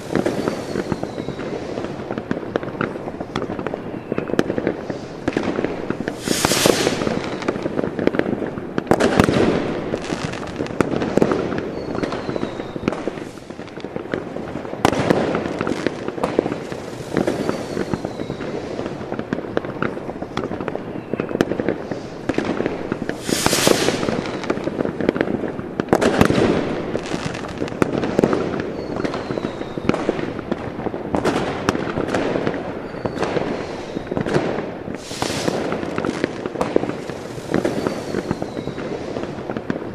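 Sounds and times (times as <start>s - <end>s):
long hissing bursts: 0.0s - 1.8s, 4.8s - 7.6s, 16.6s - 19.0s, 21.8s - 24.8s, 33.4s - 34.1s, 34.9s - 36.3s, 36.9s - 39.4s
firecrackers crackling: 0.0s - 39.9s
faint short whistles: 0.3s - 1.5s, 11.7s - 13.0s, 17.2s - 18.6s, 28.8s - 29.9s, 37.6s - 38.9s.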